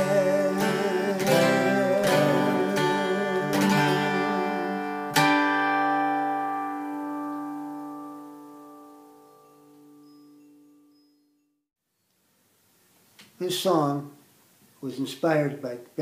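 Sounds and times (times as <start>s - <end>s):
acoustic guitar strumming chords: 0.0s - 10.1s.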